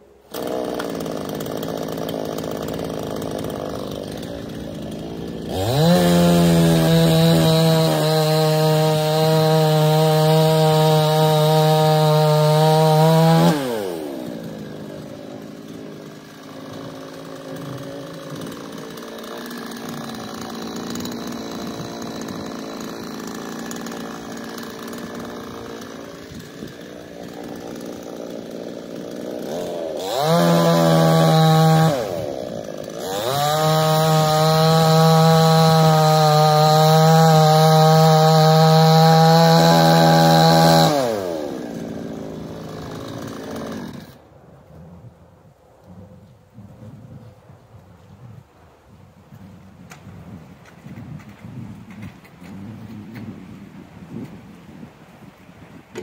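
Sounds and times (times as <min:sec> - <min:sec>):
chainsaw idling and revving: 0:00.0 - 0:44.2.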